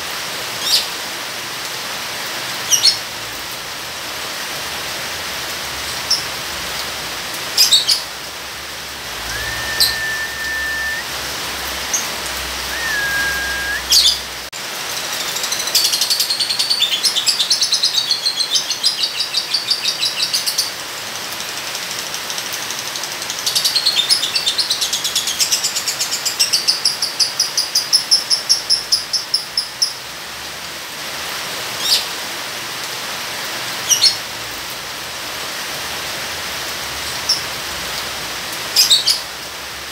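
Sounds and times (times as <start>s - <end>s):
steady rain: 0.0s - 39.9s
whistled notes: 9.2s - 11.2s, 12.6s - 14.2s.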